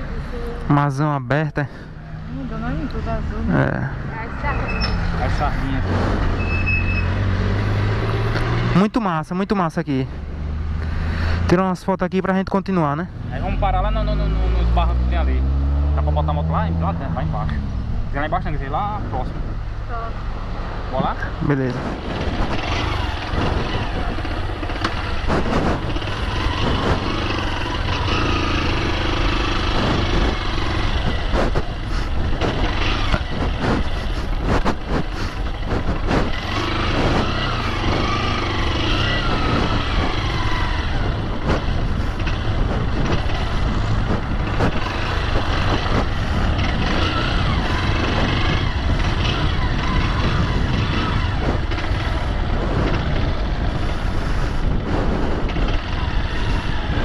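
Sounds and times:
wind rumble on microphone: 20.7 - 57.0
motorcycle engine running: 21.8 - 57.0.

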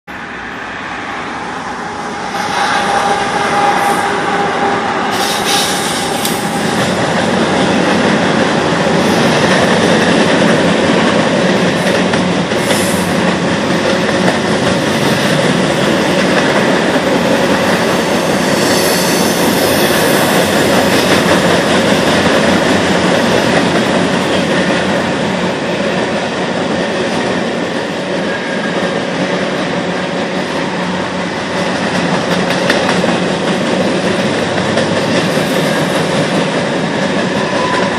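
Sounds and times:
freight train rumbling past: 0.1 - 37.9
train wheel squeals: 5.0 - 7.1, 18.3 - 21.4, 37.2 - 37.9.

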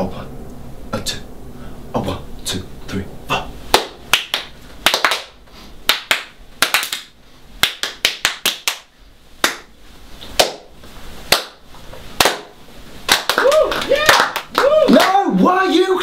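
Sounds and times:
people clapping hands: 3.7 - 9.7, 10.3 - 10.7, 11.3 - 11.6, 12.2 - 15.4.

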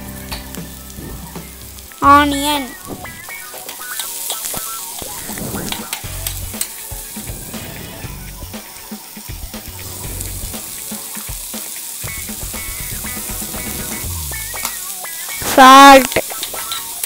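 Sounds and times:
onions sizzling in oil: 0.0 - 17.0.

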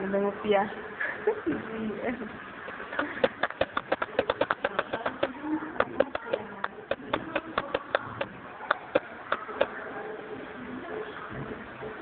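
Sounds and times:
tapping on hard surface: 3.0 - 9.7.

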